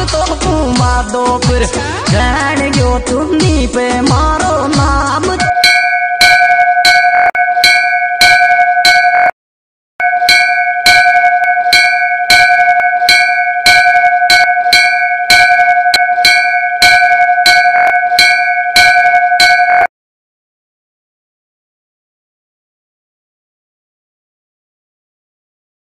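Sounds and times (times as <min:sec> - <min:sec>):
large temple bell ringing: 0:05.5 - 0:09.3, 0:10.0 - 0:19.9.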